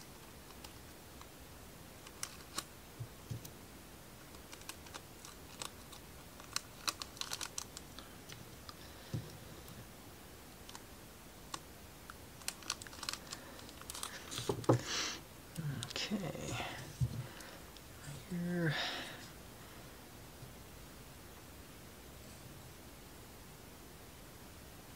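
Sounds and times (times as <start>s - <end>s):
plastic bag crinkling: 12.4s - 14.8s.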